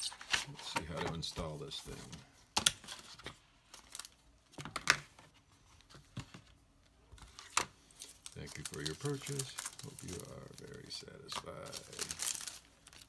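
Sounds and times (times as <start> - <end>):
plastic packaging clicks and crinkles: 2.6 - 5.0, 7.2 - 13.0.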